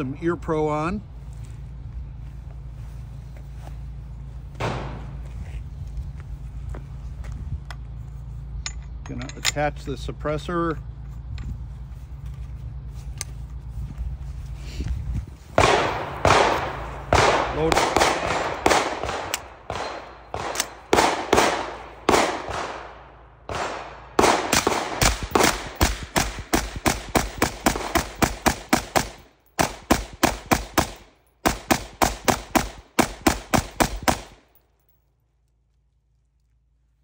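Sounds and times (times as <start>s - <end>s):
suppressed rifle shots: 4.6s - 5.2s, 15.6s - 34.4s.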